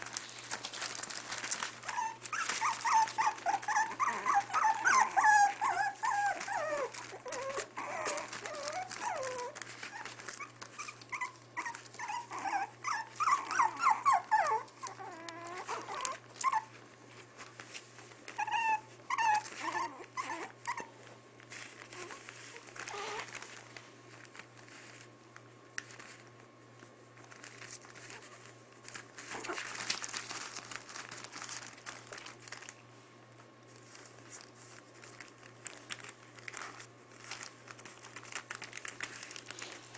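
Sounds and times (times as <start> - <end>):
newspaper rustling and crinkling: 0.0 - 39.9
puppies whining and yipping: 0.6 - 16.8, 18.3 - 21.1, 21.8 - 23.5, 29.2 - 30.2.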